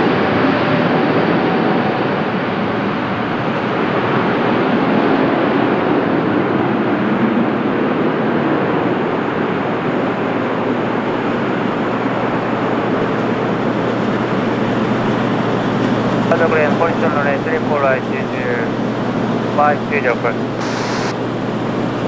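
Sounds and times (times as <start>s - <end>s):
jet engines at takeoff: 0.0s - 22.0s.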